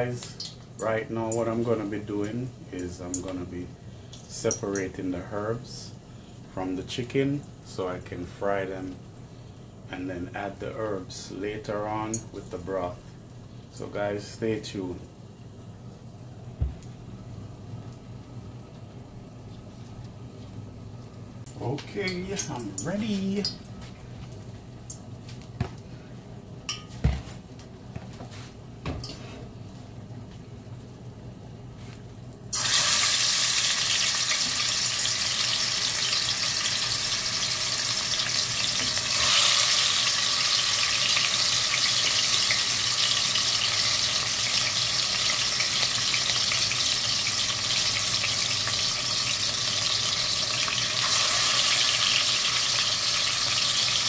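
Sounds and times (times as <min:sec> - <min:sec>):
chicken sizzling in hot oil: 0:32.5 - 0:54.0.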